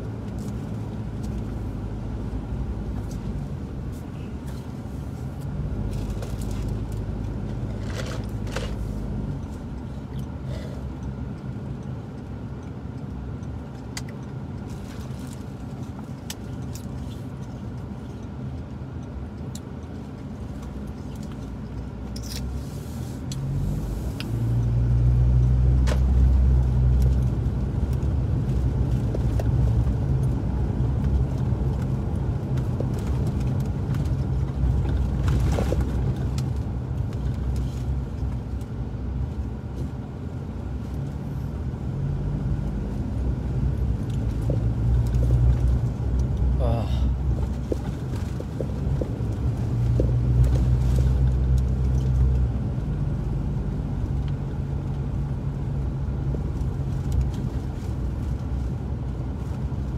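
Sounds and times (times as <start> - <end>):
car engine and road noise: 0.0 - 59.9.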